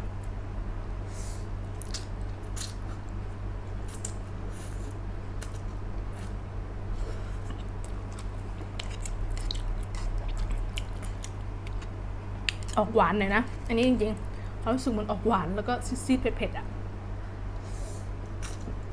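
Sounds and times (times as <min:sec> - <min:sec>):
wet chewing: 0:07.4 - 0:12.8.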